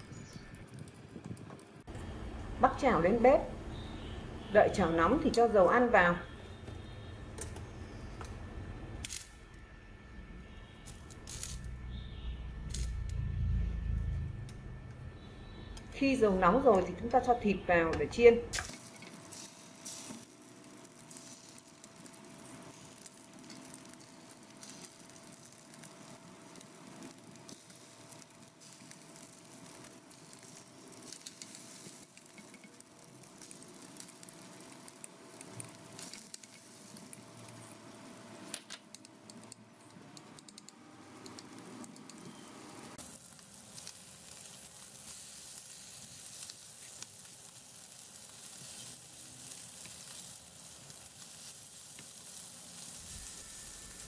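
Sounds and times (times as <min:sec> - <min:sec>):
chicken sizzling in oil: 0:18.7 - 0:38.6, 0:40.8 - 0:54.0.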